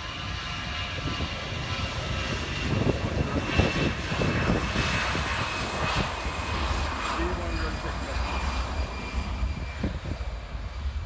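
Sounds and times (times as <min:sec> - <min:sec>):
jet engines at takeoff thrust: 0:00.0 - 0:11.0.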